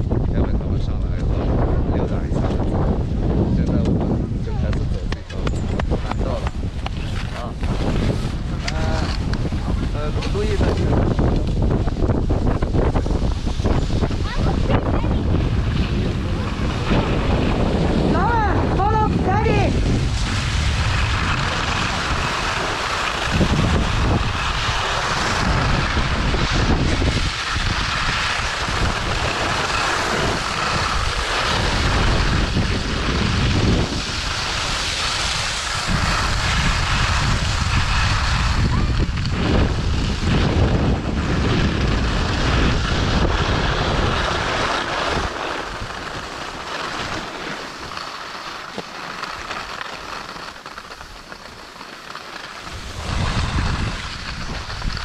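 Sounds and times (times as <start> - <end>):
wind buffeting microphone: 0.0 - 55.0
skis sliding over snow: 3.6 - 55.0.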